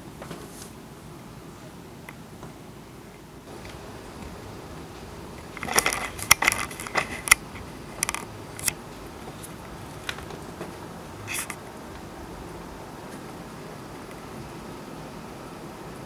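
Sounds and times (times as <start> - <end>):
heavy rain hissing: 2.7 - 16.0
sharp clicks and taps: 5.4 - 8.8.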